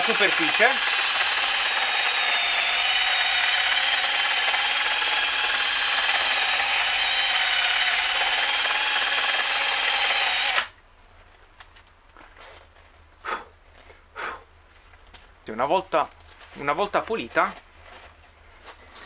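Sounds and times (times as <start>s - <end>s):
electric drill brush scrubbing metal: 0.0s - 10.7s.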